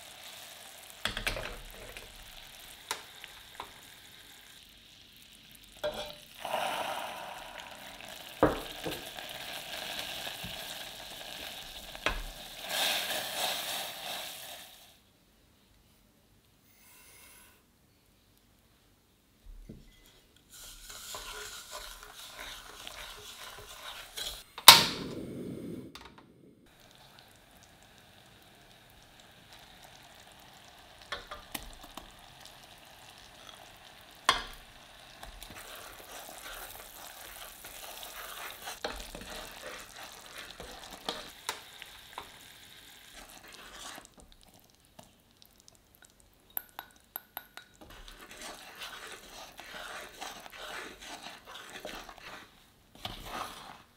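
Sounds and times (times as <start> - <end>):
syrup bubbling and sizzling: 0.0 - 15.1, 20.0 - 25.7, 26.6 - 53.9
wooden spoon scraping saucepan: 5.8 - 6.2, 19.7 - 24.5, 35.2 - 41.6, 43.1 - 44.6, 47.8 - 53.9.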